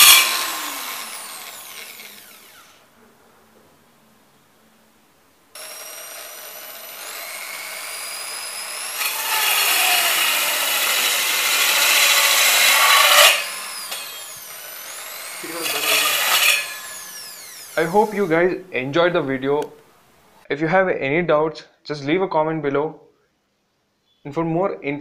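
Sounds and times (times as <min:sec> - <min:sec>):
electric drill motor whine: 0:00.0 - 0:02.8, 0:05.6 - 0:18.3
saw blade cutting wood: 0:00.0 - 0:02.8, 0:05.6 - 0:18.3.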